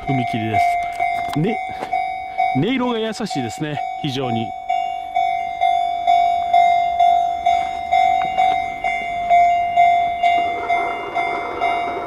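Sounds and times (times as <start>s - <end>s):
crossing bell dinging: 0.0s - 12.0s
approaching train rushing: 4.7s - 12.0s.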